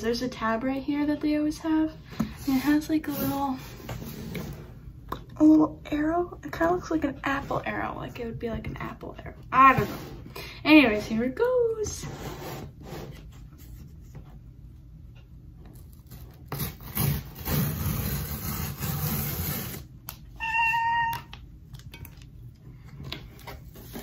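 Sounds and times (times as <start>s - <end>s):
cardboard tearing: 15.8s - 19.9s
short high squeal: 20.4s - 21.2s.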